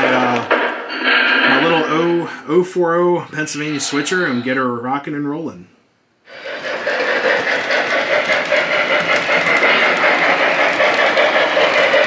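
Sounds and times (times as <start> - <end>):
model train wheels rumbling on rail: 6.3 - 12.0.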